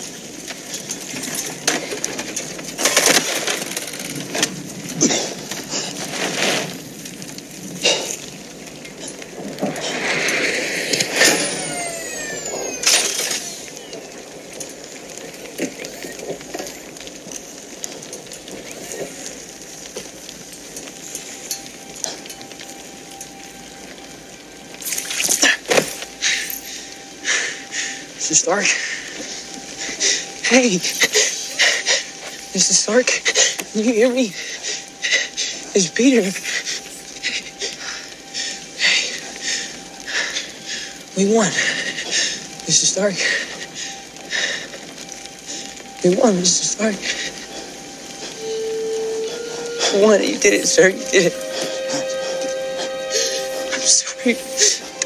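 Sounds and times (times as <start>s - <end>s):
sharp crashes and crumbling impacts: 0.2s - 22.6s
falling pitch sweeps: 48.2s - 55.0s.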